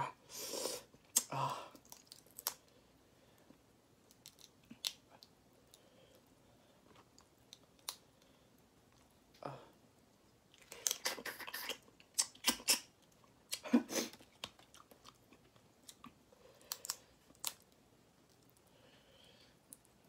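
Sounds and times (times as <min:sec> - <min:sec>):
crayfish shells cracking: 0:01.1 - 0:02.7, 0:04.1 - 0:05.2, 0:16.6 - 0:17.7
person chewing: 0:10.6 - 0:17.7.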